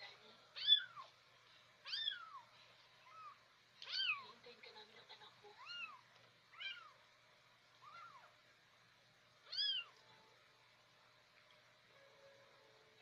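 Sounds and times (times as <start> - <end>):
kittens mewing: 1.8 - 4.2, 5.6 - 7.0, 7.8 - 8.4, 9.5 - 10.0.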